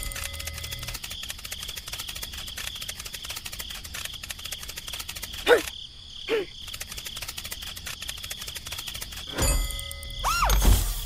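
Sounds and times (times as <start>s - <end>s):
insects chirring: 0.0s - 11.0s
loud squeaks falling in pitch: 10.2s - 10.7s.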